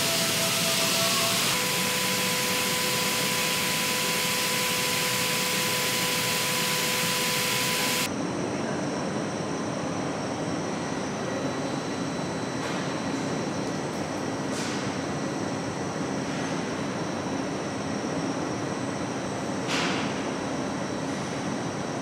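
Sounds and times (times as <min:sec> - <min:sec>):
dull machine hum: 0:00.0 - 0:08.3.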